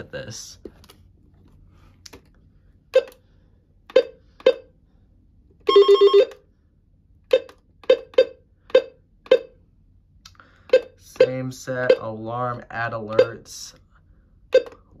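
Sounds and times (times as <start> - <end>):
short electronic beeps: 14.5 - 14.8.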